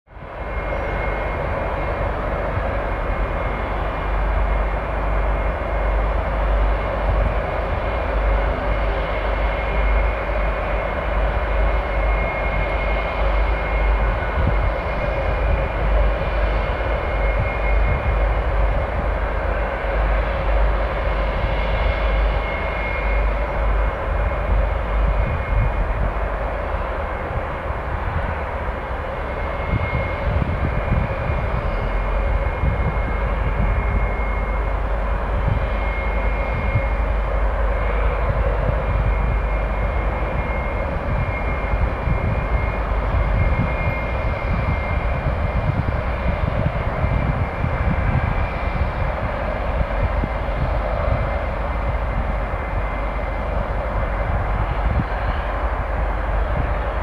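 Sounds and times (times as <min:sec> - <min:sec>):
jet engines at taxi power: 0:00.0 - 0:57.0.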